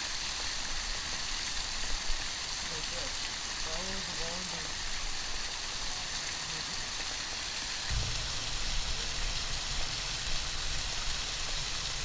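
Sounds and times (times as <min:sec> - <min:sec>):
small waterfall hissing: 0:00.0 - 0:12.0
wind rumble on microphone: 0:07.9 - 0:11.8.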